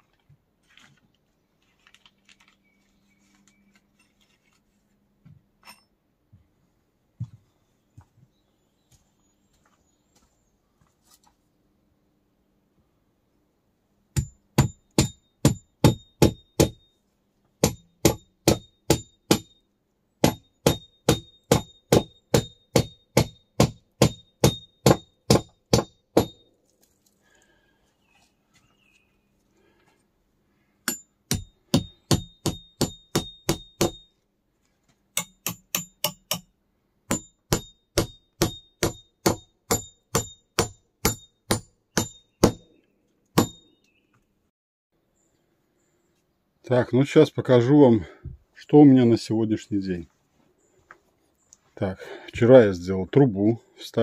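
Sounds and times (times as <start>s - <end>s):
hammer clanging on metal: 14.2s - 16.8s, 17.6s - 19.6s, 20.2s - 26.5s, 30.8s - 34.2s, 35.2s - 36.5s, 37.1s - 42.6s.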